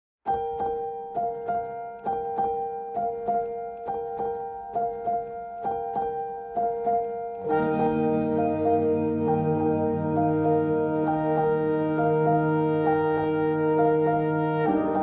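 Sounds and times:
piano-like keyboard notes: 0.2 - 15.0
low keyboard chords: 0.3 - 15.0.

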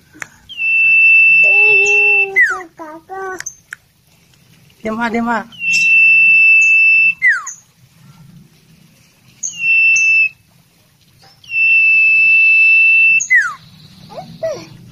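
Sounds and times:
bird whistling song: 0.4 - 2.7, 5.5 - 7.7, 9.4 - 10.4, 11.2 - 14.7.

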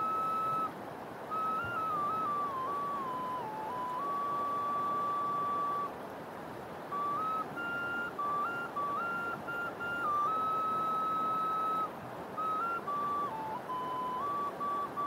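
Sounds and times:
flute-like melody: 0.0 - 6.0, 6.9 - 15.0
river rushing: 0.0 - 15.0.

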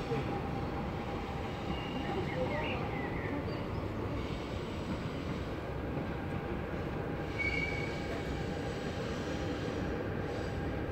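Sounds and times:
train rumbling: 0.0 - 10.9
high brake squeal: 7.3 - 8.1.

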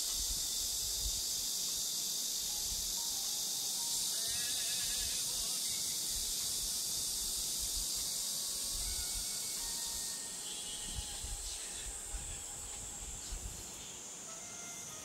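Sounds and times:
low wind rumble on microphone: 0.0 - 1.4, 10.8 - 13.6
high-pitched insect chorus: 0.0 - 15.0.

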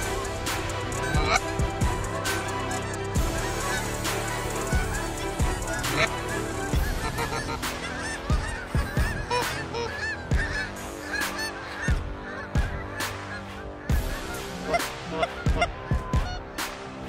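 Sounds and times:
geese honking: 0.0 - 17.0
music track with steady beat: 0.0 - 17.0.

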